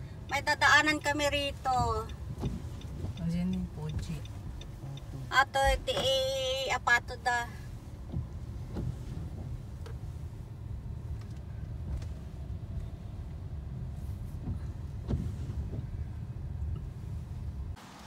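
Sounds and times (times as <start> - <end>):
car engine and tyre rumble: 0.0 - 18.0
faint ticks: 0.2 - 6.4.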